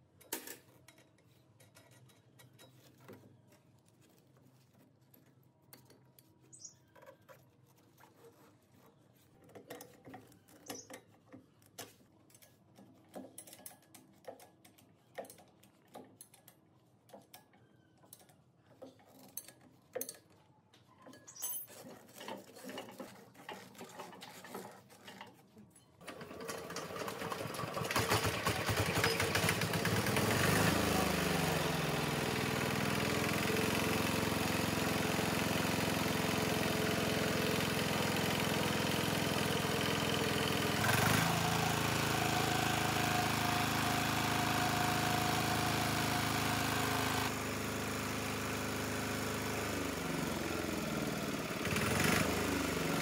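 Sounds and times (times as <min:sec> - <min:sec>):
small diesel engine running: 0:26.1 - 0:53.0.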